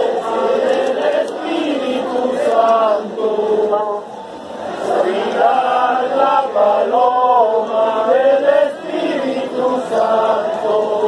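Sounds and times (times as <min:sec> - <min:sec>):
group singing a hymn: 0:00.0 - 0:04.1, 0:04.8 - 0:11.0.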